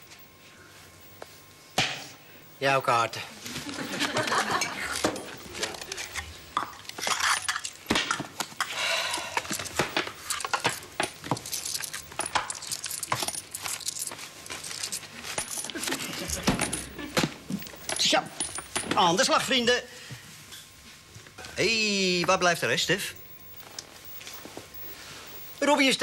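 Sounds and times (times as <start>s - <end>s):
small hard objects clattering: 4.9s - 19.1s.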